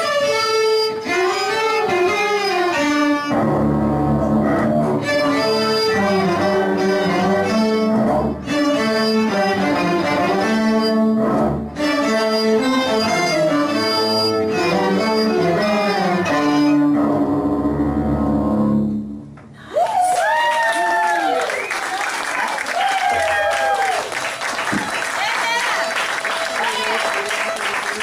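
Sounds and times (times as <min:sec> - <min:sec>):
string ensemble playing: 0:00.0 - 0:19.2, 0:25.4 - 0:28.0.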